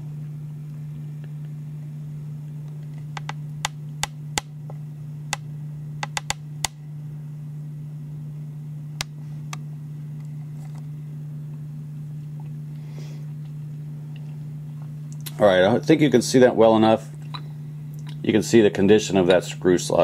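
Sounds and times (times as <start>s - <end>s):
steady low hum: 0.0s - 20.0s
sharp clicks and light taps: 6.0s - 6.8s.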